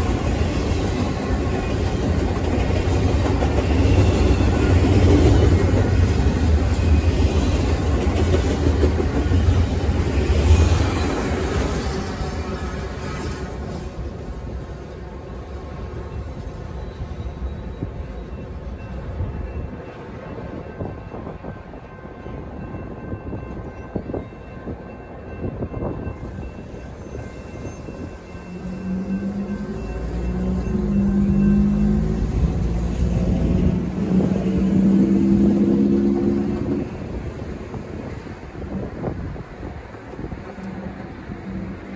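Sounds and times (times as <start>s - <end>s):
train wheels rumbling on rail: 0.0s - 41.9s
road traffic rumbling: 27.5s - 41.9s.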